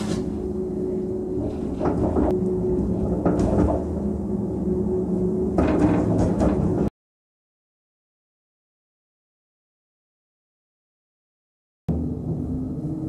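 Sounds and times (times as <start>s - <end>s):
funicular car mechanical hum: 0.0s - 6.9s, 11.9s - 13.0s
rattles and knocks: 1.3s - 4.1s, 5.5s - 6.9s.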